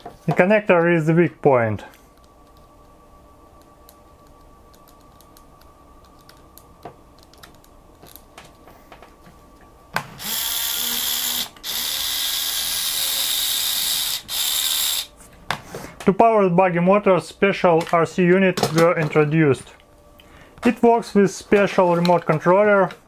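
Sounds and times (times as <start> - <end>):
toy motor high-pitched whir: 10.2 - 15.1.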